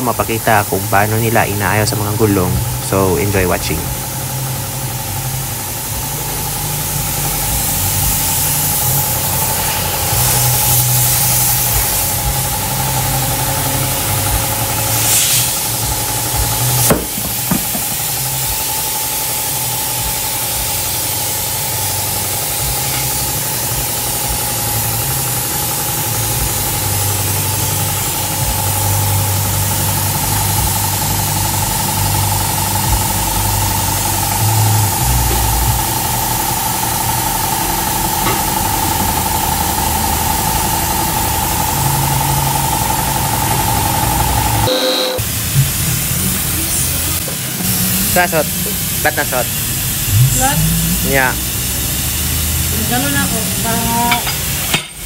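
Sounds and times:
steady whine: 0.0 - 55.0
engine running with low throb: 2.1 - 55.0
sharp knock: 16.9 - 18.0.

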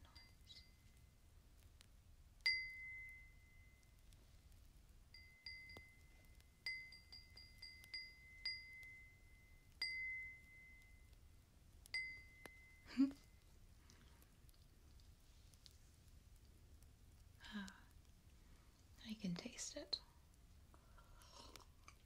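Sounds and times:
glass tapped ringing: 2.4 - 4.0, 5.1 - 11.1, 11.9 - 13.4.

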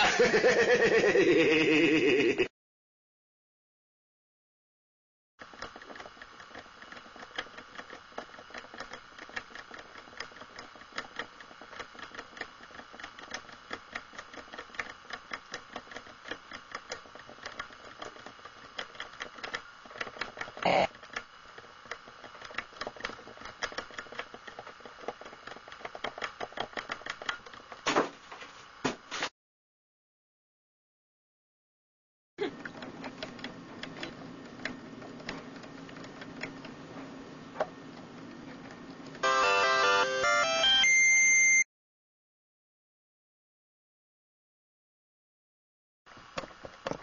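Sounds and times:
rapid mechanical clicking: 5.4 - 27.8, 32.6 - 36.9, 46.1 - 47.0.

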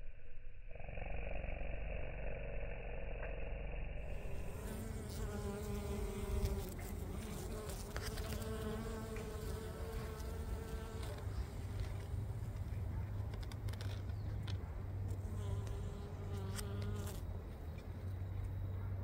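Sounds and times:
insect wings buzzing: 4.0 - 12.1, 15.2 - 17.3.

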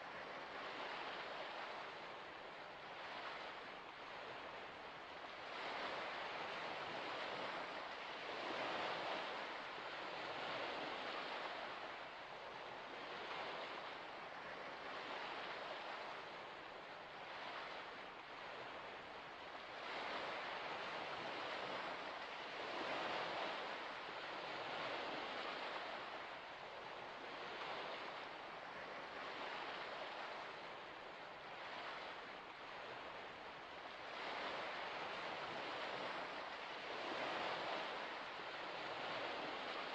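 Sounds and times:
gentle waves washing on shore: 0.0 - 39.9.

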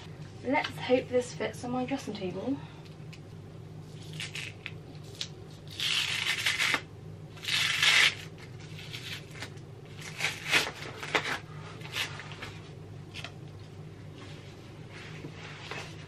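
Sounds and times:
low steady hum: 0.0 - 16.0
plastic wrap rustling: 7.4 - 13.3.

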